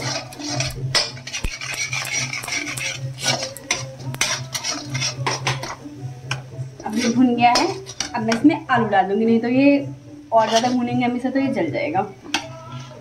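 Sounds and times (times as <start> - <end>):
metal spoon scraping a metal pan: 0.0 - 8.5, 10.4 - 11.6, 12.3 - 13.0
spices roasting in oil: 0.0 - 9.2.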